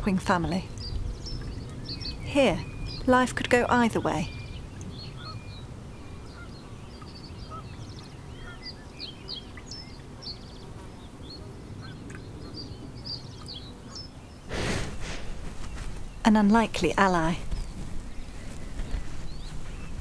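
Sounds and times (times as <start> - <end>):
small birds chirping and trilling: 0.0 - 20.0
short rush of noise: 14.5 - 16.1
steady low rumble: 14.5 - 18.2.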